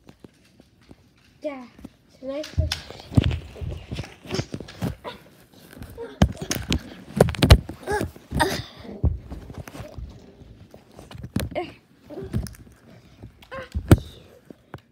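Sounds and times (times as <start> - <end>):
child's voice: 1.4 - 4.0, 11.5 - 12.5, 13.5 - 14.4.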